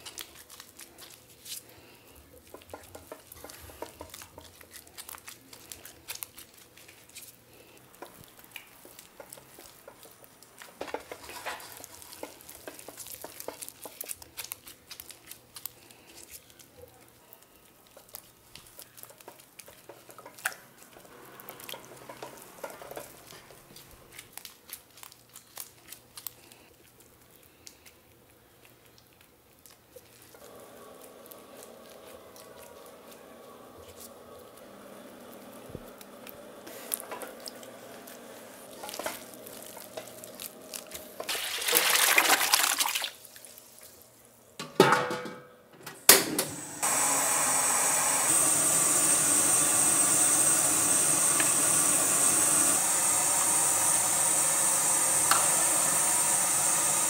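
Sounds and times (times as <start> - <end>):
wet squelches of kneading meat: 0.0 - 44.2
steady hum: 46.4 - 57.0.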